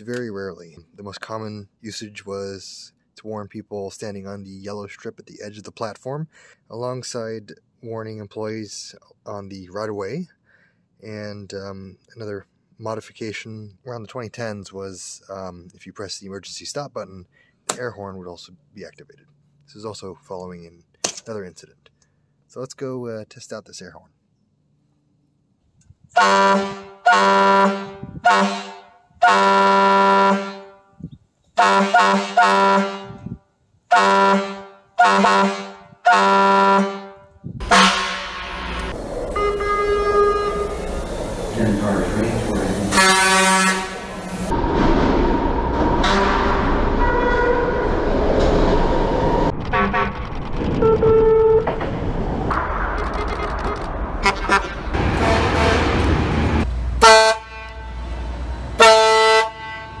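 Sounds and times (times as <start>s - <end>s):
air horn short blasts: 26.2s - 30.8s, 31.6s - 40.8s, 42.9s - 44.1s, 57.0s - 58.0s, 58.8s - 60.0s
train running rumble: 38.2s - 52.0s.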